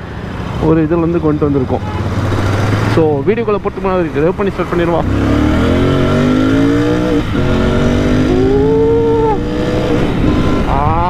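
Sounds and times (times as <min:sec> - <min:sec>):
motorcycle engine accelerating: 0:01.0 - 0:11.0
wind rushing over helmet: 0:07.2 - 0:11.0.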